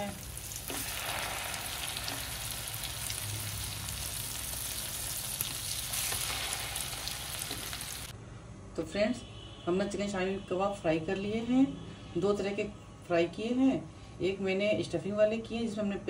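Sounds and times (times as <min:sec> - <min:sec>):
food sizzling in hot oil: 0:00.0 - 0:08.1.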